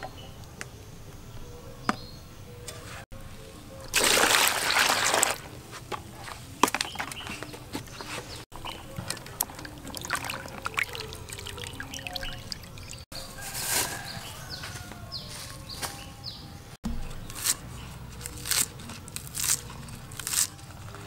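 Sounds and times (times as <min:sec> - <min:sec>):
splashes and drips: 0:03.9 - 0:05.5, 0:08.5 - 0:13.0
water pouring into plastic bowl: 0:03.9 - 0:05.5, 0:08.6 - 0:13.0.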